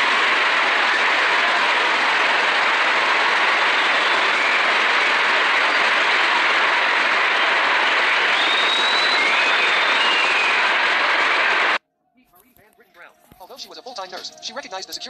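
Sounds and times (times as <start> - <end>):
audience applauding: 0.0 - 11.8
faint high whistle: 3.4 - 11.7.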